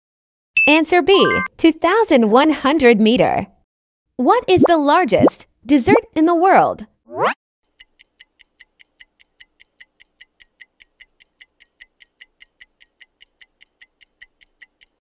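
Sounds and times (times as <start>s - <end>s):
clock-like timer ticking: 7.7s - 15.0s.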